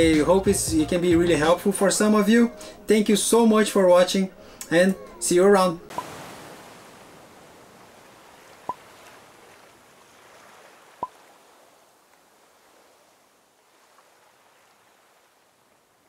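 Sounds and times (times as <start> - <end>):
faint water wash: 5.9 - 16.0.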